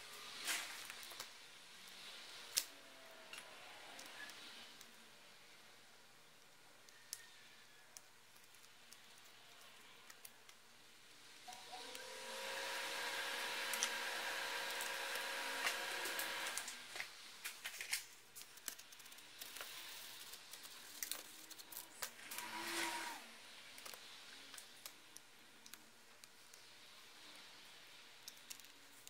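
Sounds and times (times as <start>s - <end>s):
electric blower whining: 11.6s - 16.8s, 22.3s - 23.2s.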